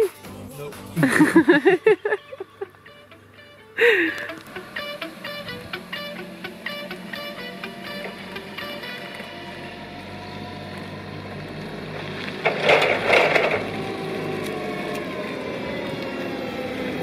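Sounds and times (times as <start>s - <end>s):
forklift engine running: 0.8s - 17.0s.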